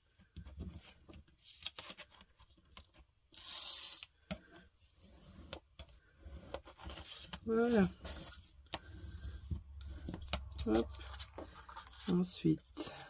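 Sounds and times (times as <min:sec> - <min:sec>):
cardboard rubbing along ruler: 0:04.8 - 0:12.2.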